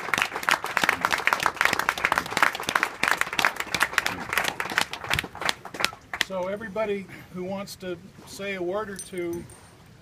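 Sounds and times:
crowd applauding: 0:00.0 - 0:06.3.

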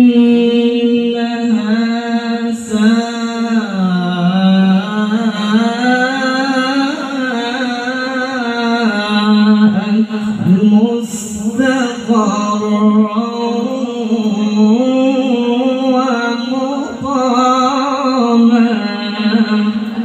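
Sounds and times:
man reciting melodically: 0:00.0 - 0:20.0
breaths: 0:10.1 - 0:10.5.

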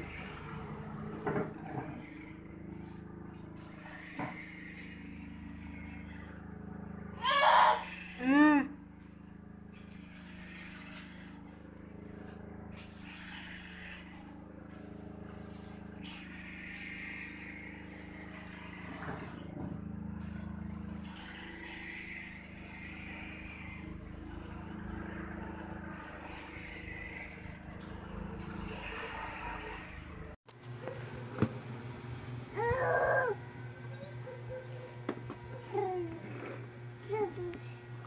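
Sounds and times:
low mechanical hum: 0:00.0 - 0:38.0
broom swishing on floor: 0:10.2 - 0:15.9.

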